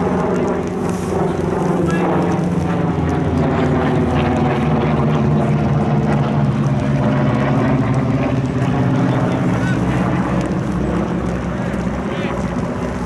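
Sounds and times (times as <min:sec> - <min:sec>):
engine drone: 0:00.0 - 0:13.0.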